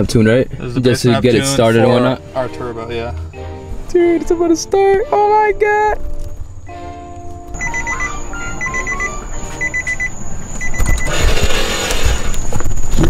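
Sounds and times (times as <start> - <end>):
rustling and low thumps: 5.8 - 6.6
rapid electronic beeping: 7.6 - 11.8.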